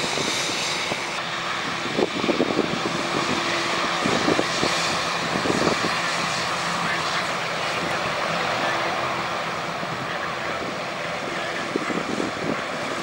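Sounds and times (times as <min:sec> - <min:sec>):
jet engines rushing and whining: 0:00.0 - 0:13.0.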